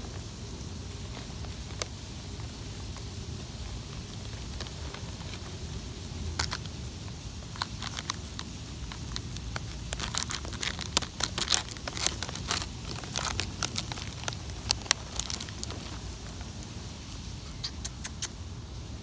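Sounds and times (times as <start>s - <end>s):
plastic snack pouch crinkling: 3.6s - 17.3s.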